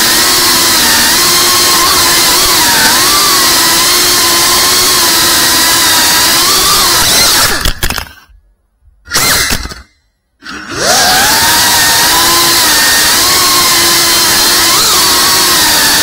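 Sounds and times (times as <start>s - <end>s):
drone propellers whining: 9.1s - 16.0s.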